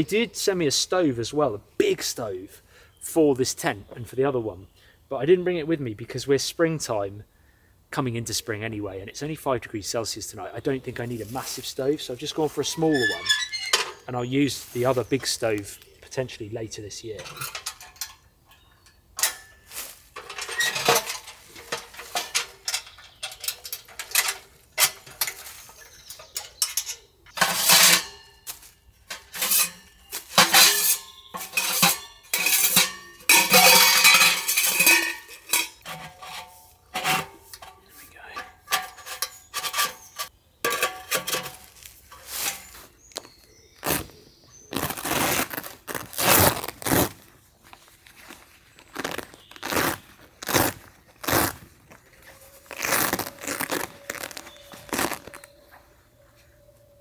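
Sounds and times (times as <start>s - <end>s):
metal stove parts clanking: 12.6s - 14.1s, 17.1s - 42.8s.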